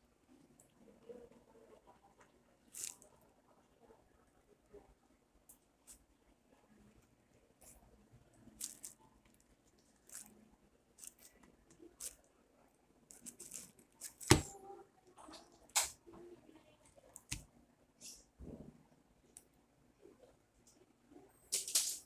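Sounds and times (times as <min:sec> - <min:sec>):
jackfruit tearing and squishing: 0:02.7 - 0:03.0, 0:08.5 - 0:09.0, 0:11.0 - 0:12.2, 0:13.1 - 0:14.5.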